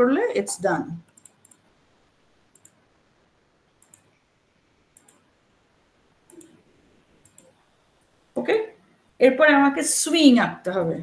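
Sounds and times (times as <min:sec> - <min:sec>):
computer mouse clicks: 0:01.1 - 0:01.7, 0:02.5 - 0:02.8, 0:03.8 - 0:04.1, 0:04.9 - 0:05.2, 0:06.3 - 0:06.6, 0:07.2 - 0:07.6.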